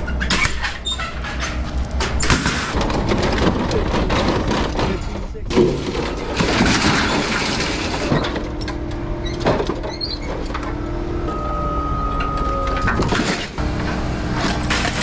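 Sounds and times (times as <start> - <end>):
metal scrap clanking: 0.0 - 10.8, 12.2 - 15.0
diesel engine humming: 0.0 - 15.0
hydraulic whine: 8.2 - 15.0.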